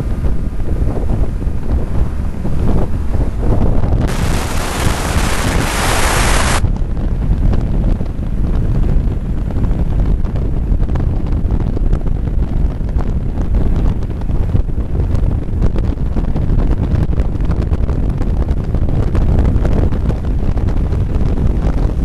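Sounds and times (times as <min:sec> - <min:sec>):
wind buffeting microphone: 0:00.0 - 0:22.0
loud hiss: 0:04.1 - 0:06.6.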